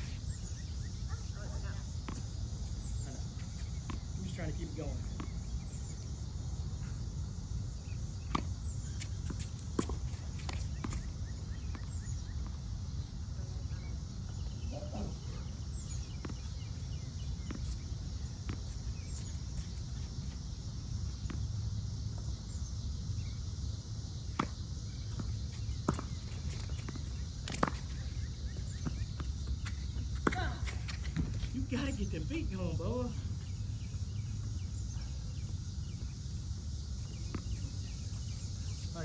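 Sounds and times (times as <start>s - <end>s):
ball bouncing on hard court: 25.1s - 27.9s.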